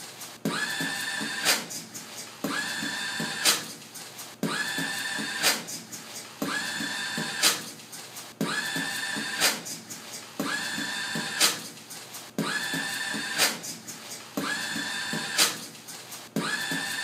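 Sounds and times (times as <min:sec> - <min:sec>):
paper towel dispenser motor whirring: 0:12.4 - 0:13.6, 0:14.4 - 0:15.6.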